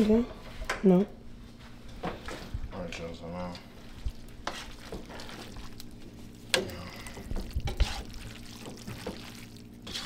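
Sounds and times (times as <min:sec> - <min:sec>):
spoon stirring spaghetti in pot: 0:04.0 - 0:10.0.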